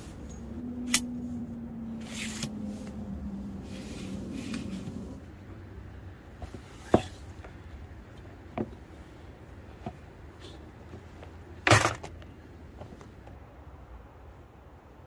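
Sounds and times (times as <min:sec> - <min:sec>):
tent fabric rustling: 0:00.0 - 0:05.4
low steady background noise: 0:00.0 - 0:15.0.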